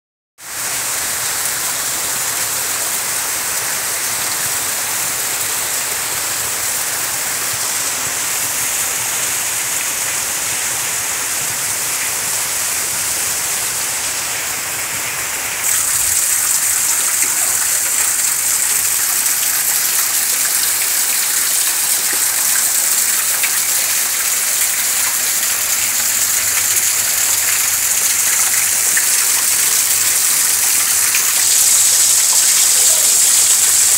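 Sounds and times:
heavy rain: 0:00.4 - 0:33.9.

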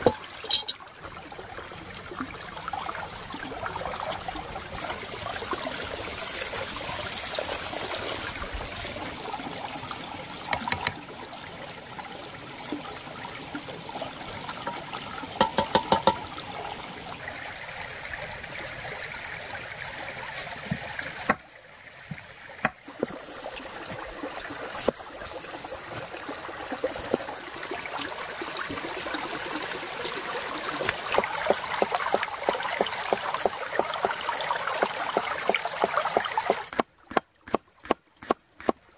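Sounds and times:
stream babbling over rocks: 0:00.0 - 0:38.8
sharp knocks: 0:15.4 - 0:16.2.

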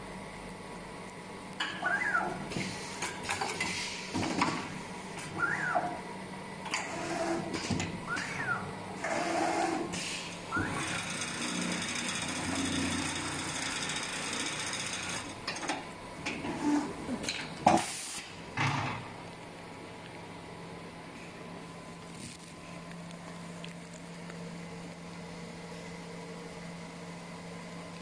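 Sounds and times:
sewing machine running: 0:09.0 - 0:15.4
short bursts of air: 0:09.9 - 0:10.4, 0:17.7 - 0:18.4.

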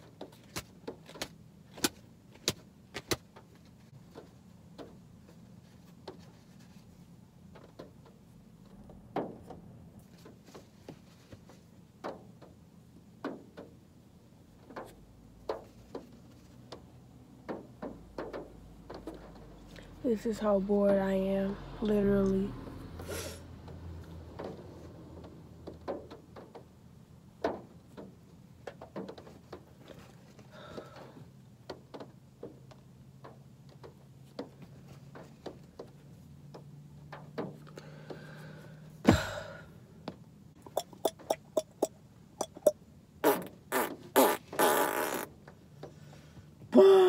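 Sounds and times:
lip smacks and clicks: 0:40.6 - 0:42.7.

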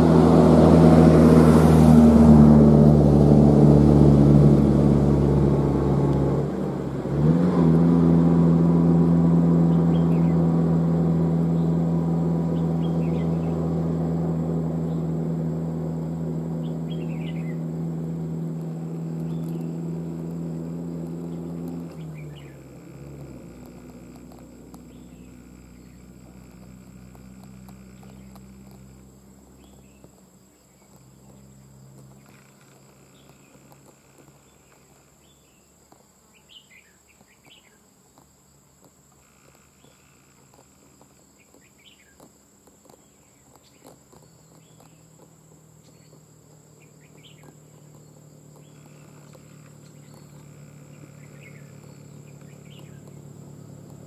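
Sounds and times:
low motor hum: 0:00.0 - 0:54.0
birds chirping: 0:09.6 - 0:10.5, 0:11.4 - 0:13.8, 0:14.6 - 0:54.0
high insect drone: 0:11.3 - 0:54.0.

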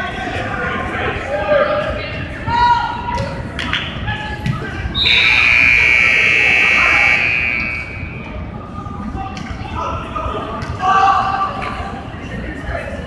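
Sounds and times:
spectator voices: 0:04.8 - 0:09.3
arena horn long blast: 0:05.1 - 0:08.1.

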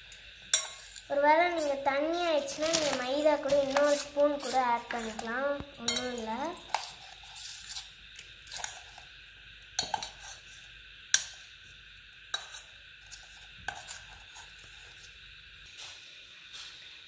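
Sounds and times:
spoon scraping metal bowl: 0:00.5 - 0:09.0, 0:09.8 - 0:10.5, 0:12.3 - 0:15.1.

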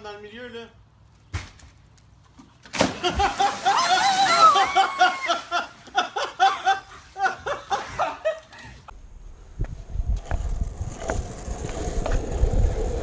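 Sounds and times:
splash into pool: 0:02.7 - 0:05.5
loud laughter: 0:03.0 - 0:08.7.

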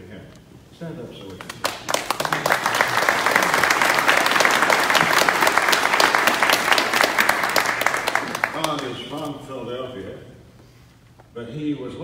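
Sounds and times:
audience applauding: 0:01.4 - 0:09.2.

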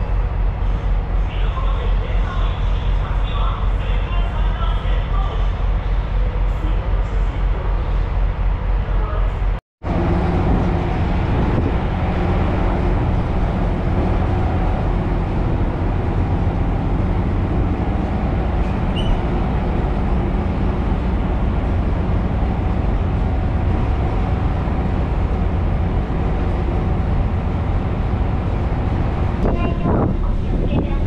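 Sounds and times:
ferry engine rumble: 0:00.0 - 0:31.0
wind: 0:00.0 - 0:31.0
water noise: 0:09.8 - 0:31.0.

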